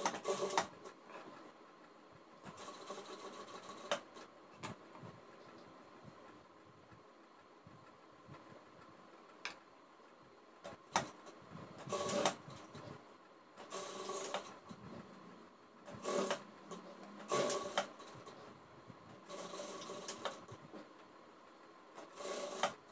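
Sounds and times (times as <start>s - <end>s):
sewing machine stitching: 0.0s - 1.4s, 2.4s - 4.3s, 11.8s - 12.8s, 13.6s - 15.0s, 15.8s - 18.5s, 19.2s - 20.6s, 22.0s - 22.9s.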